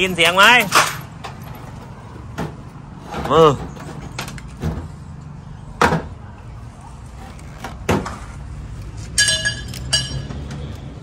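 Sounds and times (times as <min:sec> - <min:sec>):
metal knocks and clinks: 0:09.2 - 0:10.5.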